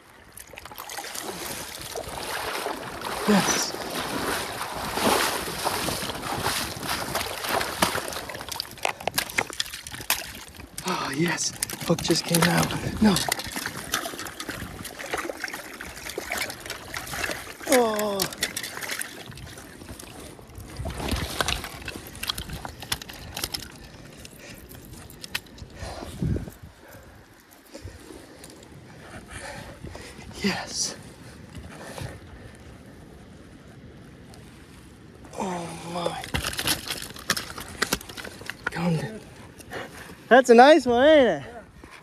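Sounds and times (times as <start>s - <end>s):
water splashing in a stream: 0.0s - 25.6s, 35.4s - 39.1s.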